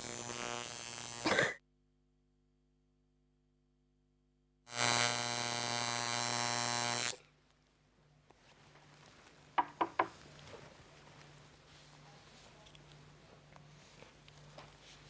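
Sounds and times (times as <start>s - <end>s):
tattoo machine buzzing: 0.0s - 1.4s, 4.7s - 7.2s.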